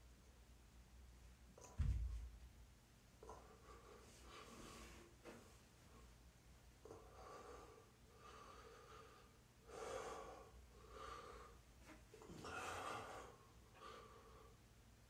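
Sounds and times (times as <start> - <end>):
man breathing: 6.8 - 14.7.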